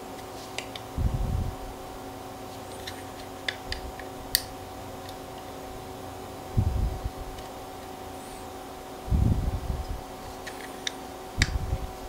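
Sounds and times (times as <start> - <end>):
low handling rumble: 1.0 - 1.8, 6.4 - 7.4, 9.1 - 10.0.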